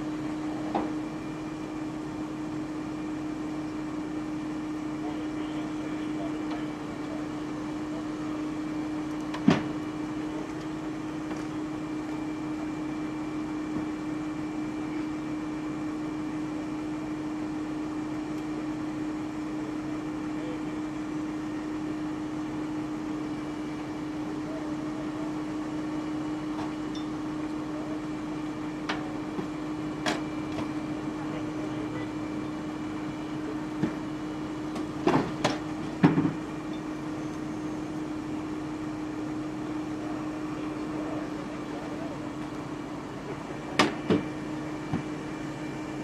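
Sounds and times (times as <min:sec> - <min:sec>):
steady mechanical hum: 0:00.0 - 0:46.0.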